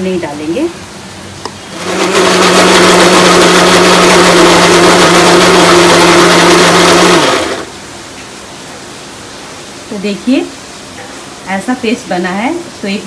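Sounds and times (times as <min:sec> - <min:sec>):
mixer grinder whirring: 0:01.5 - 0:07.8.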